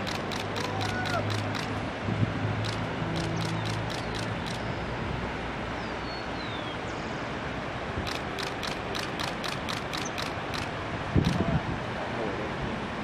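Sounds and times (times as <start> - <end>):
short high ticks: 0.0 - 1.8, 2.6 - 4.7, 8.1 - 11.4.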